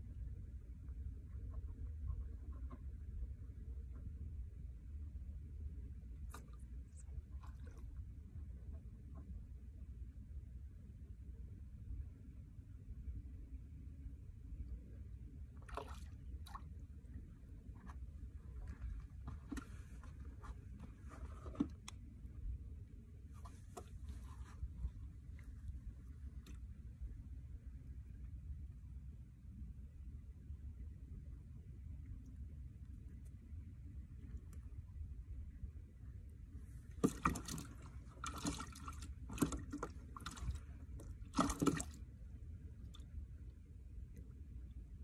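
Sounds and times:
steady low rumble: 0.0s - 45.0s
water splashing and sloshing: 6.0s - 9.4s, 15.4s - 22.6s, 23.2s - 28.0s, 36.2s - 45.0s.

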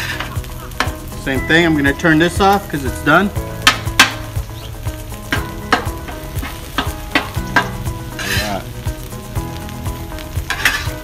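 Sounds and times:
metal spatula scraping griddle: 0.0s - 1.1s, 5.3s - 8.7s, 10.4s - 11.0s
rice sizzling: 0.0s - 11.0s.

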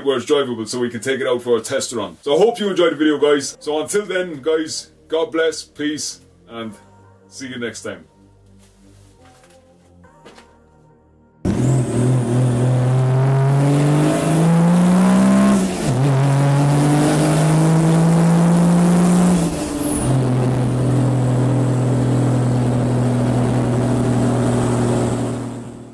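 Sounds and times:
car engine accelerating: 11.4s - 25.9s.

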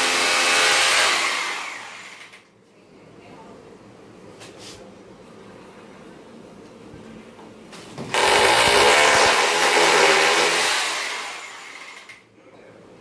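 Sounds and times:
electric drill running: 0.0s - 2.4s, 8.1s - 12.1s.

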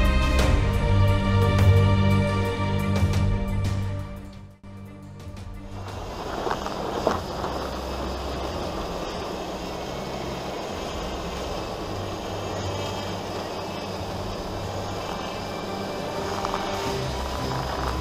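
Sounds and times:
vehicle engine and tyre noise: 5.0s - 18.0s.

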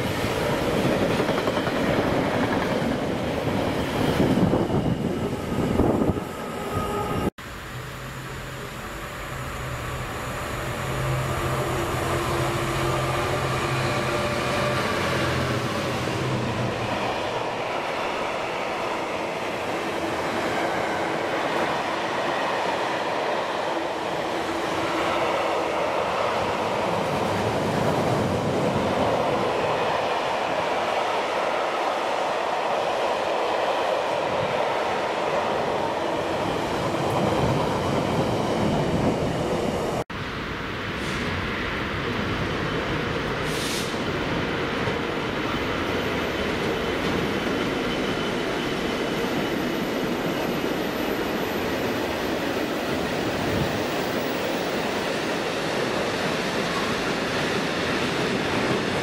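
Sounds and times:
diesel locomotive engine droning: 0.0s - 30.9s.

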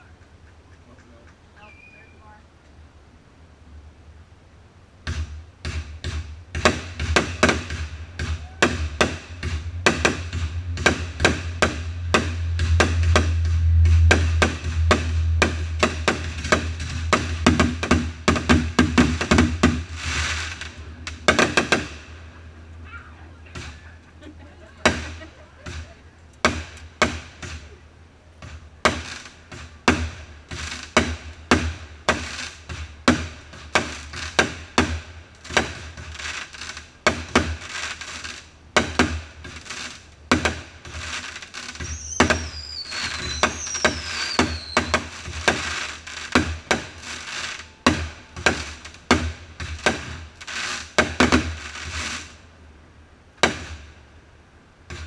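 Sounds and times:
fireworks whistles falling in pitch: 1.6s - 2.4s, 7.4s - 21.8s, 41.0s - 49.0s
fireworks bursting with sharp bangs: 5.0s - 52.5s, 53.3s - 54.2s.

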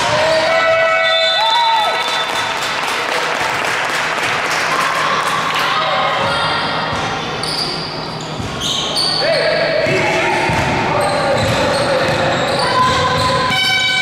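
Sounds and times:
indoor hall noise: 0.0s - 14.0s
basketballs bouncing on court floor: 9.8s - 13.6s.

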